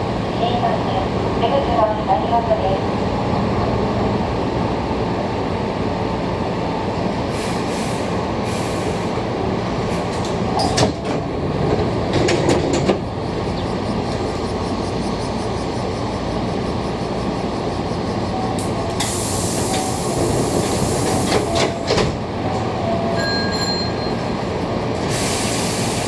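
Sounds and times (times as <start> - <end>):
electric train rumble: 0.0 - 26.0
air hiss bursts: 19.0 - 21.4, 25.0 - 26.0.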